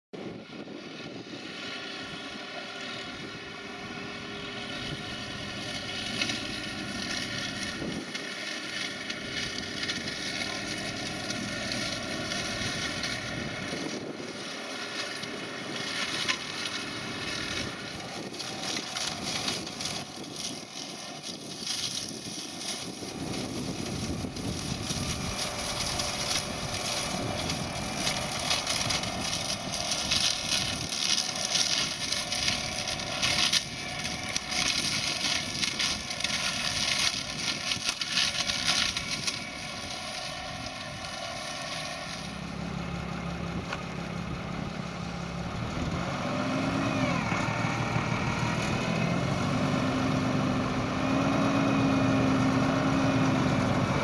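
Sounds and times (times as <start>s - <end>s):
tractor diesel engine: 0.2s - 54.0s
flail hedge cutter cutting: 1.4s - 54.0s
twigs snapping: 17.4s - 42.5s.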